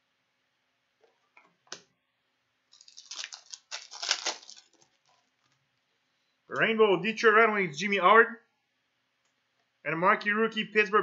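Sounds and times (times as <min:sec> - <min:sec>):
foil wrapper crinkling: 0:02.7 - 0:05.6.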